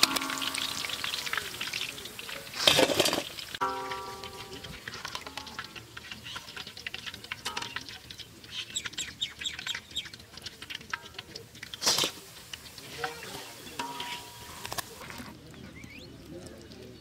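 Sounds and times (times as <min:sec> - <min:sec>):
hot oil crackling: 0:00.0 - 0:17.0
small birds chirping: 0:06.0 - 0:06.7, 0:08.1 - 0:10.3, 0:15.4 - 0:17.0.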